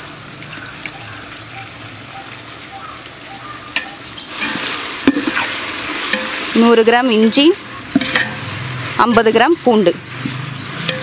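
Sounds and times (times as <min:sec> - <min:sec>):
small animal chirping: 0:00.0 - 0:04.3, 0:07.4 - 0:11.0
frying in hot oil sizzling: 0:00.0 - 0:11.0.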